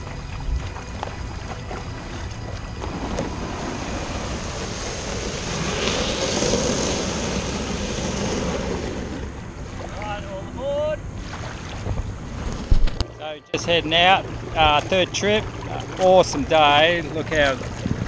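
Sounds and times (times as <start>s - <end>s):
small waves washing on shore: 0.0s - 13.0s
wind buffeting microphone: 0.0s - 13.1s.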